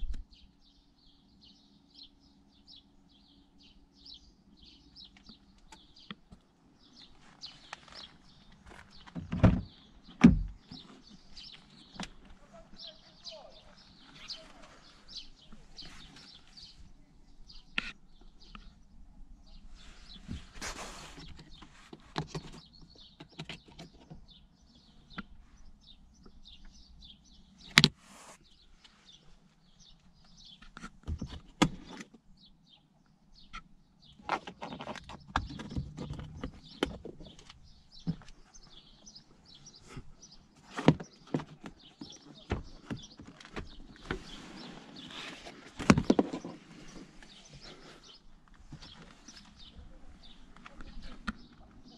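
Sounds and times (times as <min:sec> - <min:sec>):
faint birds chirping: 0:00.0 - 0:51.9
handling knocks and rustles: 0:39.6 - 0:51.9.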